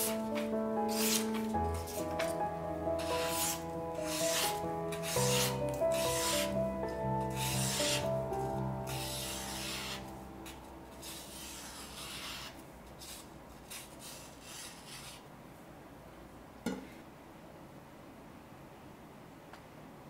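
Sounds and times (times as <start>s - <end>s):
knife slicing paper: 0.0s - 2.4s, 3.0s - 6.6s, 7.3s - 15.2s
background music: 0.0s - 12.5s.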